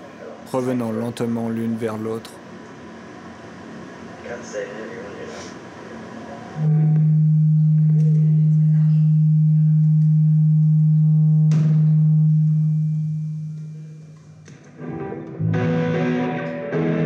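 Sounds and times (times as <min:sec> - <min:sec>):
loud steady low tone: 0:06.6 - 0:14.2
click: 0:07.8 - 0:08.3, 0:09.8 - 0:10.2.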